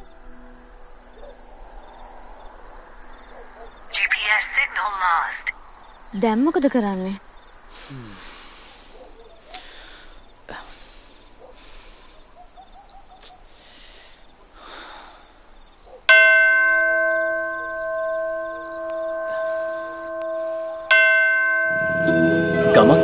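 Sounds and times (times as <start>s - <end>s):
crickets chirping: 0.0s - 23.0s
bell ringing: 16.1s - 23.0s.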